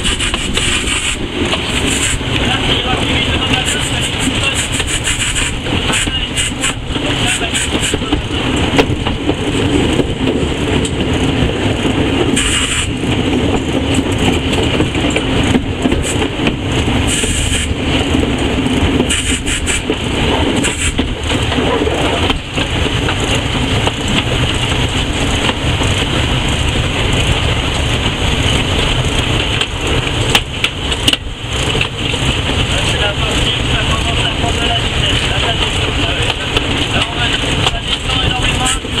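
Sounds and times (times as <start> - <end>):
steam locomotive rumble and clatter: 0.0 - 39.0.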